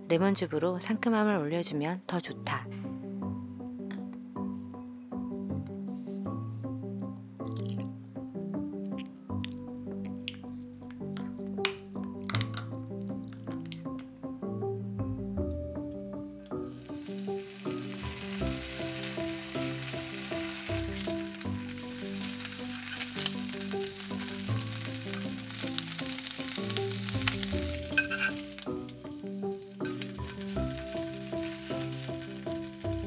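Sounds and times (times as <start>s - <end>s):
light background tune: 0.0s - 33.0s
bacon sizzling with pops: 7.4s - 8.0s, 8.8s - 14.2s, 15.9s - 33.0s.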